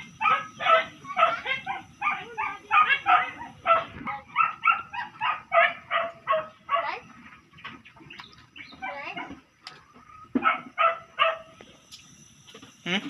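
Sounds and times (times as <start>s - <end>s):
dog barking rapidly: 0.1s - 7.0s, 10.4s - 11.5s.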